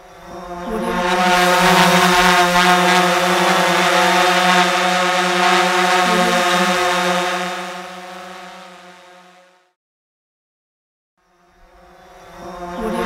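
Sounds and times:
bees buzzing: 0.5s - 9.3s.

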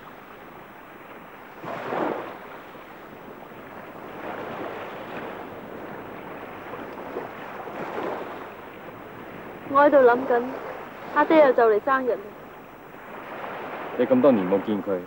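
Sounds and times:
rushing water surges: 9.7s - 15.0s.

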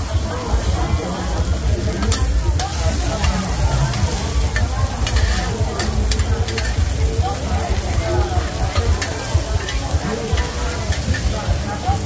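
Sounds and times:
food sizzling in hot oil: 0.0s - 12.0s
steady low rumble: 1.0s - 7.2s.

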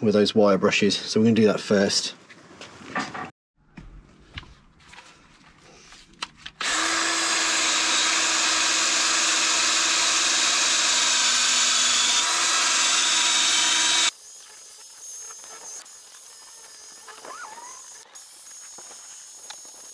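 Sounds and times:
drill wire brush scrubbing metal: 6.6s - 19.9s.

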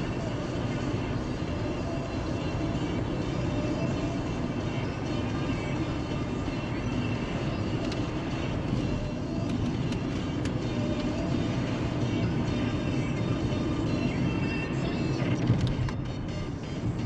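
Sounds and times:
car road and engine noise: 0.0s - 17.0s.

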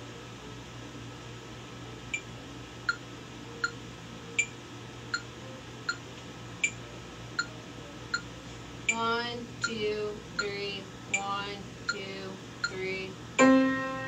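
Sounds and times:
steady low hum: 0.0s - 14.0s
metronome ticking: 8.9s - 13.6s.

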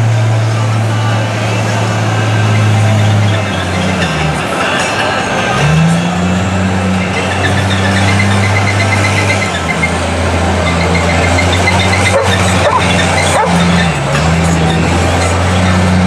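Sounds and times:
truck engine running hard: 0.0s - 16.0s.

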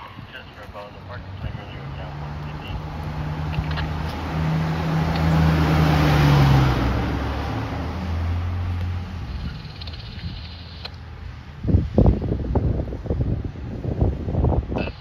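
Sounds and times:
ambulance driving past: 0.0s - 9.3s.

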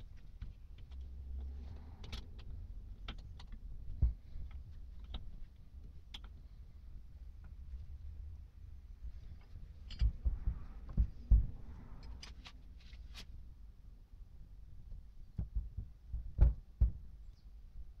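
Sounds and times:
thumps and knocks on metal casing: 15.3s - 17.2s.

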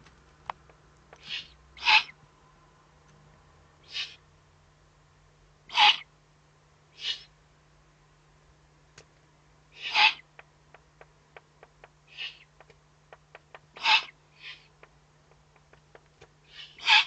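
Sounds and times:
low electrical hum: 0.0s - 17.0s
owl chick hissing call: 1.2s - 2.2s, 3.8s - 4.2s, 5.7s - 6.1s, 6.9s - 7.3s, 9.7s - 10.3s, 12.1s - 12.5s, 13.8s - 14.7s, 16.5s - 17.0s.

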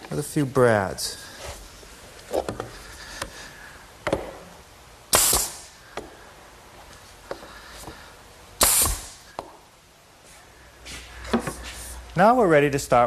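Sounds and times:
pneumatic nailer shot and hiss: 5.1s - 5.8s, 8.6s - 9.4s.

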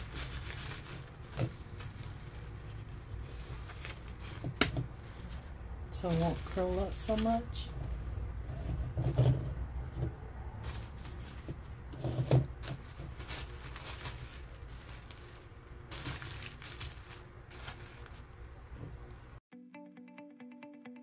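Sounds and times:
paper rustling: 0.0s - 7.4s, 10.6s - 19.3s.

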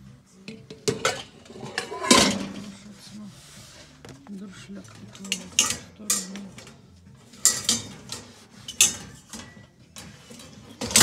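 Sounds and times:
metal pots clinking: 0.4s - 2.8s, 4.8s - 11.0s.

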